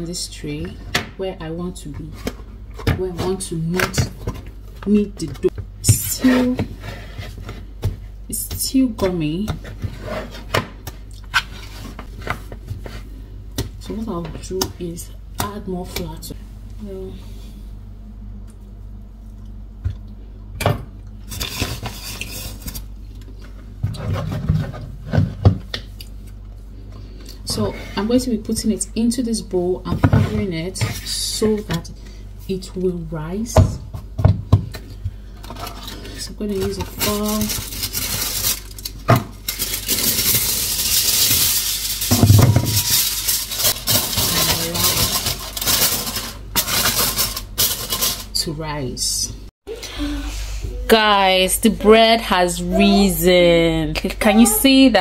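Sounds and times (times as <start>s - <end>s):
steady low hum: 0.0s - 55.0s
aluminium foil crinkling: 35.9s - 48.4s.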